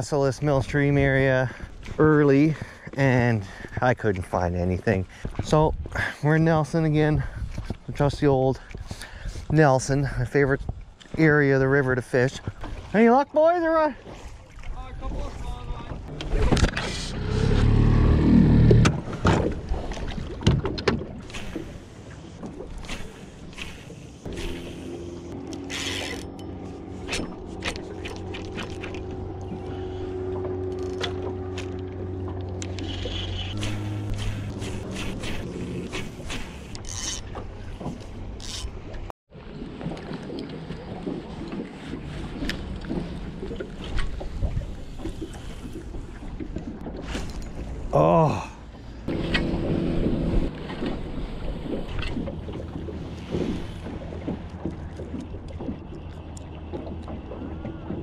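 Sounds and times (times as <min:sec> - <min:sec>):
water and wind noise: 0:00.0 - 0:58.0
outboard motor humming: 0:15.7 - 0:58.0.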